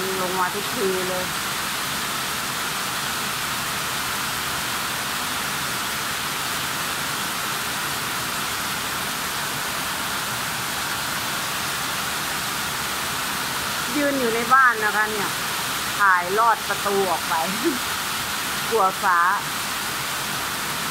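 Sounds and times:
heavy rain pouring: 0:00.0 - 0:20.9.

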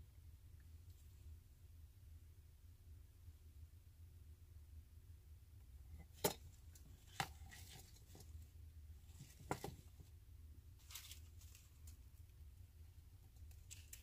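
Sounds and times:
low steady hum: 0:00.0 - 0:14.0
faint rustles: 0:06.5 - 0:14.0.

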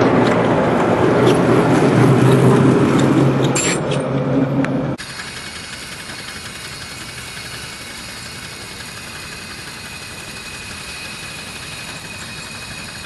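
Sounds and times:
steam hissing: 0:05.0 - 0:13.0.

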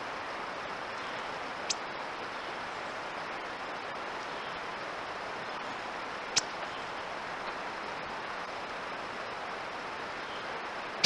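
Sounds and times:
outdoor ambience hiss: 0:00.0 - 0:11.0
sharp high ticks: 0:06.4 - 0:06.6.

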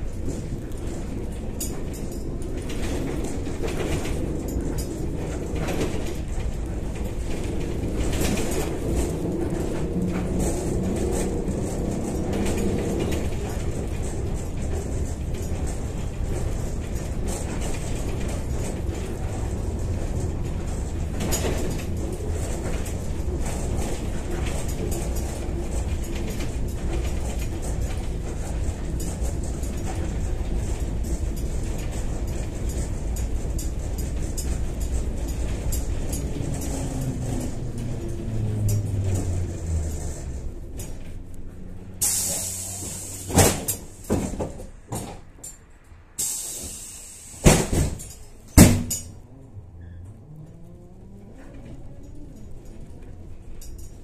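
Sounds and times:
light rattling: 0:00.0 - 0:44.9
trolleybus road rumble: 0:00.0 - 0:54.0
low motor hum: 0:33.0 - 0:42.0, 0:49.0 - 0:53.6.

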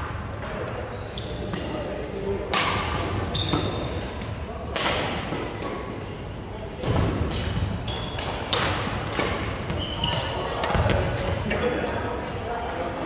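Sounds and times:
sneaker squeak: 0:00.9 - 0:01.8, 0:03.2 - 0:04.0, 0:07.4 - 0:08.4, 0:09.6 - 0:11.0
rackets hitting shuttlecock: 0:02.4 - 0:06.1, 0:06.8 - 0:11.5.

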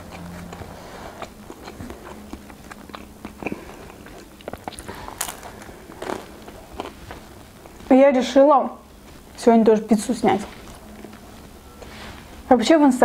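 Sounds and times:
bite into pizza: 0:00.0 - 0:07.8
person chewing pizza: 0:00.0 - 0:12.5.

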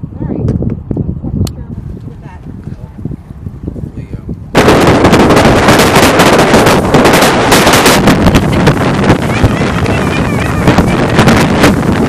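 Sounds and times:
wind buffeting on microphone: 0:00.0 - 0:12.0
motorboat motor rumble: 0:04.4 - 0:12.0.

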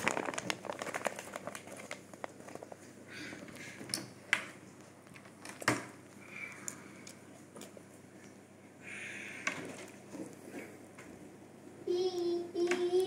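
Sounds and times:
child chewing and mouth smacks: 0:06.1 - 0:08.4.

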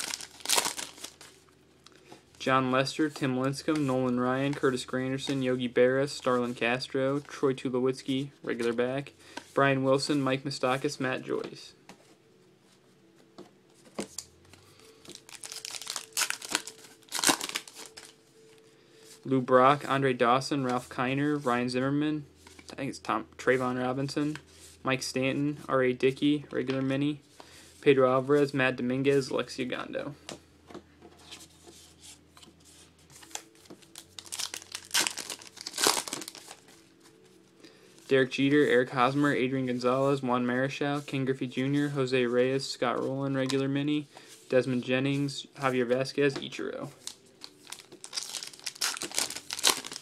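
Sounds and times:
wrapper crinkling and tearing: 0:00.0 - 0:01.4, 0:15.0 - 0:18.2, 0:33.2 - 0:36.7, 0:47.0 - 0:50.0.

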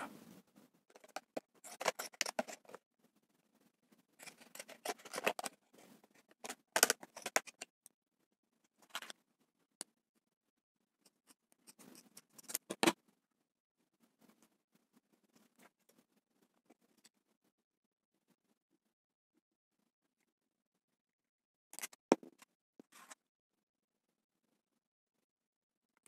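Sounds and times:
scissors snipping plastic: 0:06.4 - 0:07.7.

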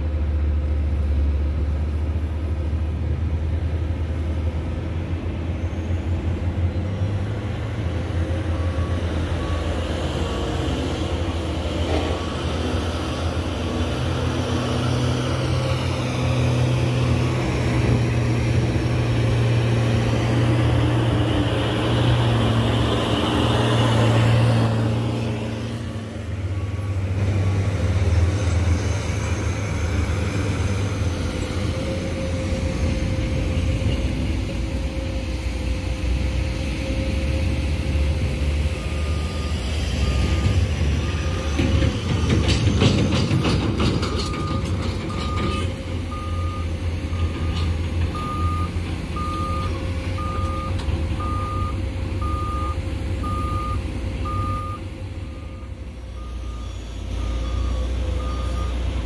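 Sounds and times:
heavy diesel engines rumbling: 0:00.0 - 0:59.0
reversing alarm beeping: 0:38.8 - 0:41.8, 0:44.1 - 0:58.9.

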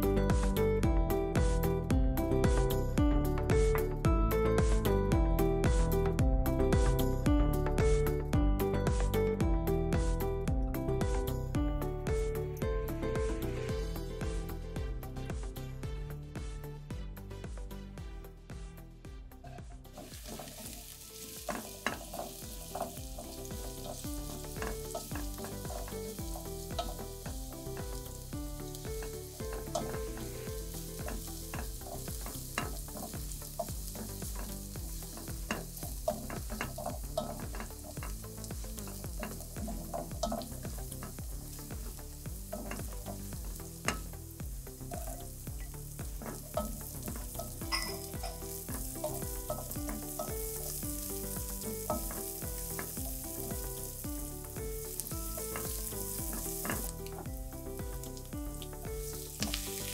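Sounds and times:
spoon stirring and scraping pot: 0:19.4 - 0:54.0, 0:54.8 - 0:57.2
garlic and onion sizzling in oil: 0:19.4 - 0:59.9.

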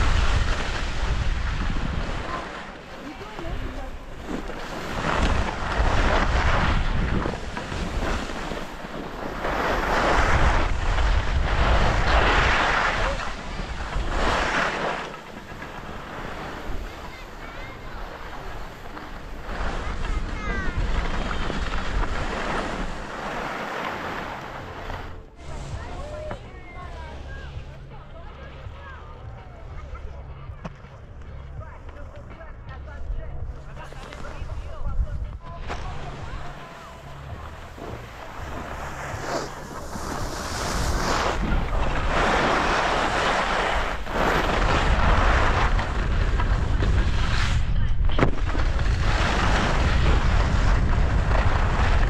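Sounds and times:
wind buffeting microphone: 0:00.0 - 0:14.6, 0:34.3 - 0:52.0
skis scraping on snow: 0:00.0 - 0:29.0, 0:31.7 - 0:52.0.

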